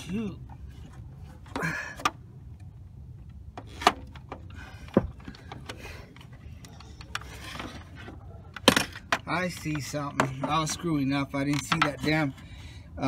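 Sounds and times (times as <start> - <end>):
sharp clicks and knocks: 11.4 - 12.2.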